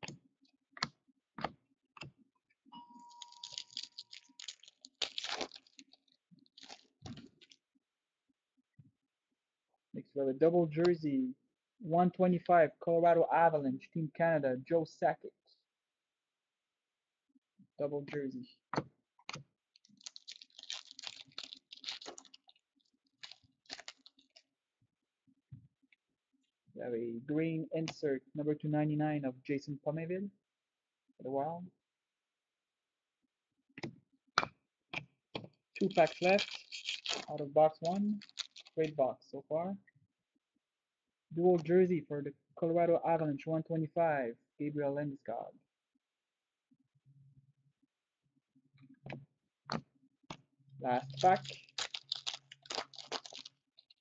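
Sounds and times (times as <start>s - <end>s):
wrapping crinkling and rustling: 2.9s - 7.6s, 19.7s - 24.4s, 35.8s - 38.9s, 51.0s - 54.0s.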